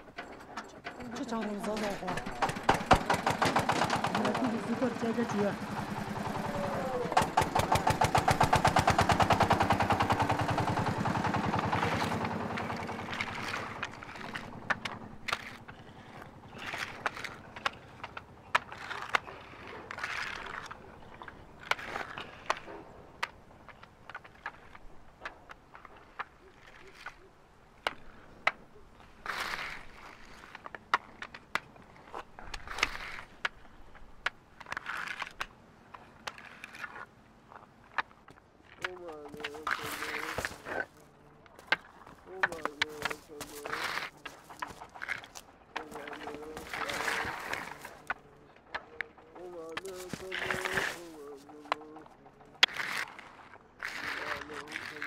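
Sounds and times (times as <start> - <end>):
wooden boards clacking: 0.0 - 4.9, 5.6 - 15.8
tractor diesel engine chugging: 0.0 - 15.3
hands and boards clacking on road: 0.0 - 55.0.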